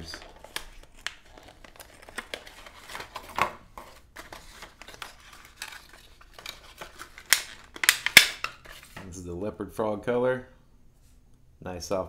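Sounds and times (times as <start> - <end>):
plastic packaging crinkling: 0.0 - 8.9.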